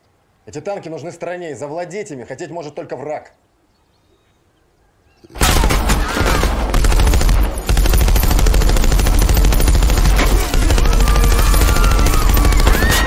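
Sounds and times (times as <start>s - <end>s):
machine gun rapid fire: 5.4s - 13.0s.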